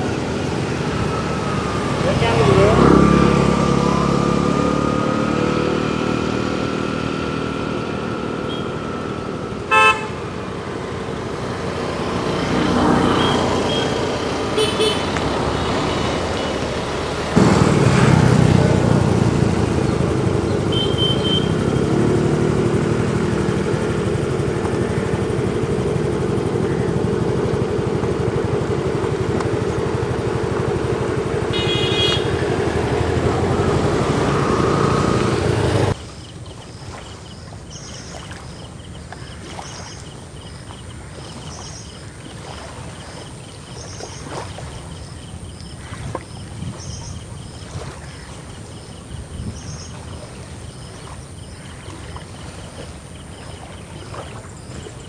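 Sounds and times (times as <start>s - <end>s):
engine running: 0.0s - 55.0s.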